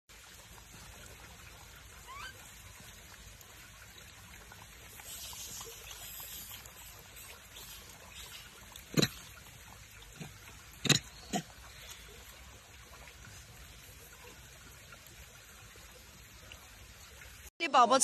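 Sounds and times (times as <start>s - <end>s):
trickle of running water: 0.1s - 17.5s
macaques feeding on apple: 5.0s - 12.4s.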